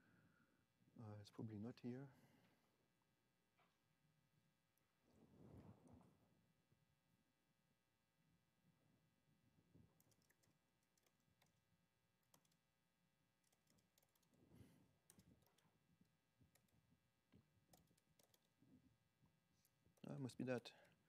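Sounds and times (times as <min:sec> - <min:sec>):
typing on laptop keyboard: 0:09.8 - 0:12.8, 0:13.4 - 0:18.6.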